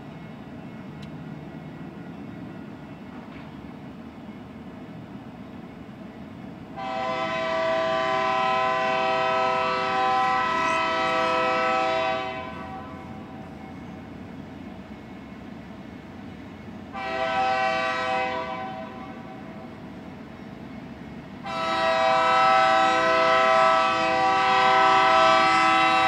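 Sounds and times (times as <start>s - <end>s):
locomotive air horn blast: 6.7s - 13.2s, 16.9s - 19.4s, 21.4s - 26.0s.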